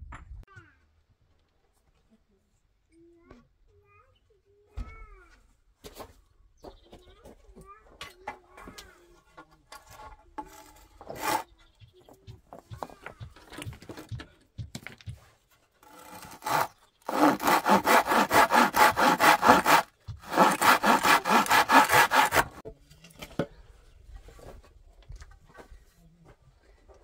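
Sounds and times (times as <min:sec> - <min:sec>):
handsaw cutting wood: 0:10.4 - 0:11.4, 0:15.8 - 0:22.6.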